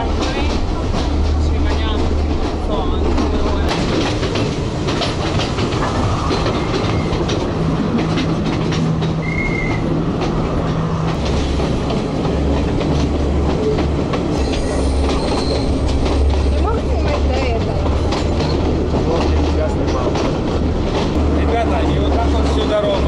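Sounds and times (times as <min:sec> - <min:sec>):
train rumbling on track: 0:00.0 - 0:23.0
wheels clacking over rail joints: 0:00.0 - 0:23.0
high train squeal: 0:05.8 - 0:07.2, 0:09.1 - 0:10.0, 0:14.3 - 0:16.8.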